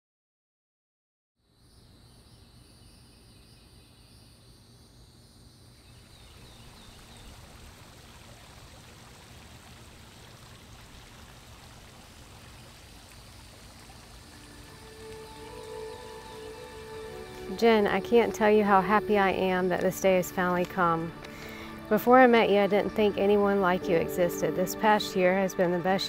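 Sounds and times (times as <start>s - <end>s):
running trickling water: 6.0s - 26.0s.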